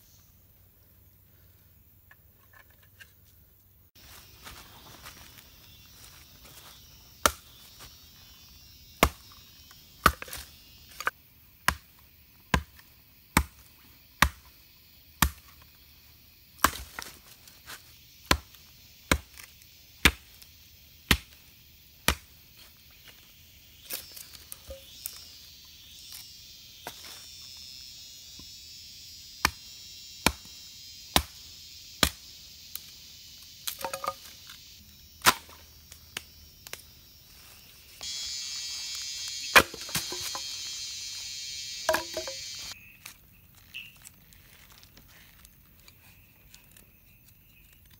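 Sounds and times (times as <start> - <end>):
axe splitting log: 10.0 - 11.1, 39.5 - 40.6, 41.9 - 42.6.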